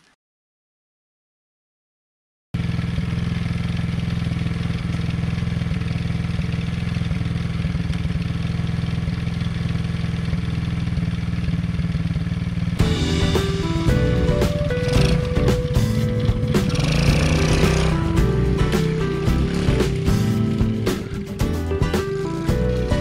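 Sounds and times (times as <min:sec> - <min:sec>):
small engine running at low speed: 0:02.6 - 0:23.0
music: 0:12.8 - 0:23.0.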